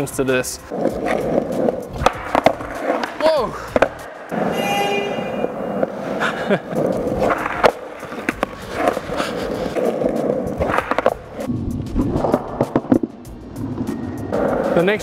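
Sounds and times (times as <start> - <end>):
skateboard wheels rolling: 0.0 - 15.0
skateboard clacking on ground: 0.6 - 4.7, 5.4 - 13.3.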